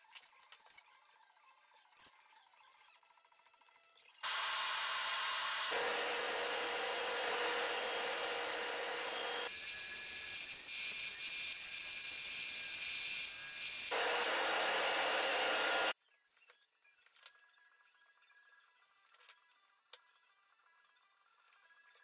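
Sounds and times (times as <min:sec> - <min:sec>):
bandsaw cutting wood: 0:04.2 - 0:09.5, 0:13.9 - 0:16.0
bandsaw motor hum: 0:04.2 - 0:09.5, 0:13.9 - 0:16.0.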